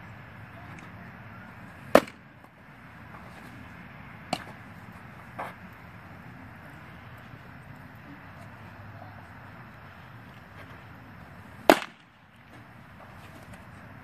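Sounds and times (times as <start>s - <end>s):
baseball popping into a mitt: 1.9s - 2.2s, 4.2s - 4.6s, 11.6s - 12.1s.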